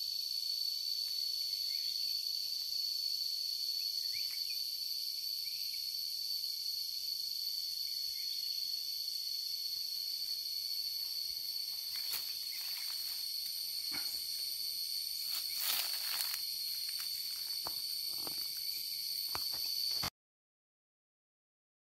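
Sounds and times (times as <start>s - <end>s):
high-pitched insect chorus: 0.0s - 20.1s.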